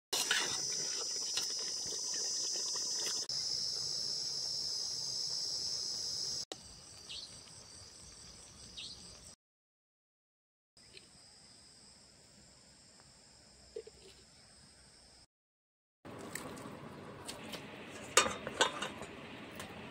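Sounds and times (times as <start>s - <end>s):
crickets trilling: 0.2s - 9.4s.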